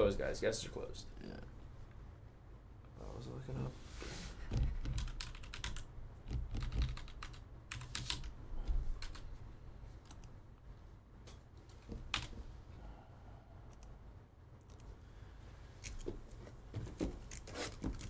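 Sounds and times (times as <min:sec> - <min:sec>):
typing on a computer keyboard: 0:04.5 - 0:09.3, 0:11.9 - 0:12.4.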